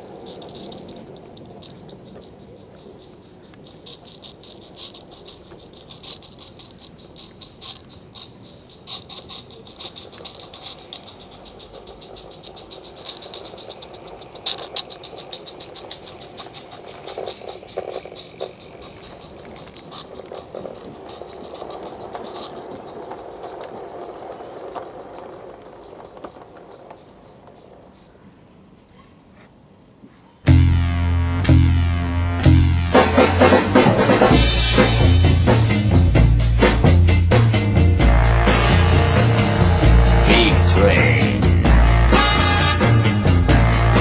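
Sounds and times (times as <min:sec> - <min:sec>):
steam locomotive chuffing: 0:00.0 - 0:28.2, 0:32.4 - 0:44.0
wheel squeal: 0:00.0 - 0:28.2
wagons rattling over track: 0:00.0 - 0:30.0, 0:32.4 - 0:44.0.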